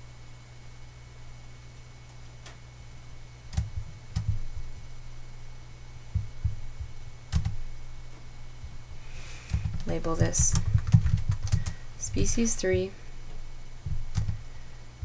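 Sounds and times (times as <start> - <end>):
steady low hum: 0.0 - 15.0
computer mouse clicking: 3.5 - 4.4, 7.3 - 7.6, 9.5 - 11.8, 14.1 - 14.4.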